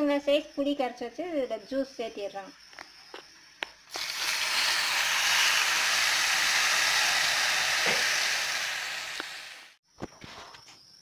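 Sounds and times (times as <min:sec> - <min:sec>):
oil sizzling in a frying pan: 0:03.9 - 0:09.8.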